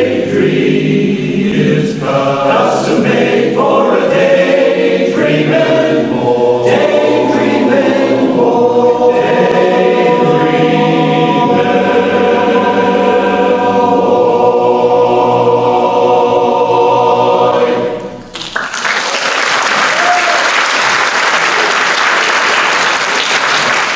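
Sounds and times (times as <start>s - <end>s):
men's chorus singing a cappella: 0.0s - 18.2s
applause: 18.3s - 23.9s.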